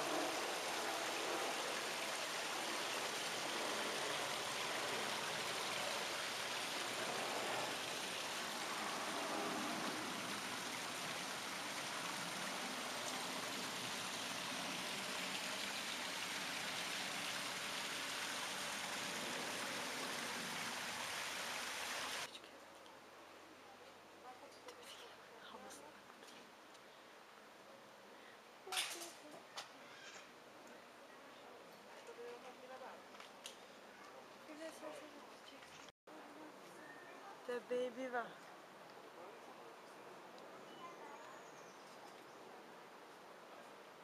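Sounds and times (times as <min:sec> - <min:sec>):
running water rushing: 0:00.0 - 0:22.3.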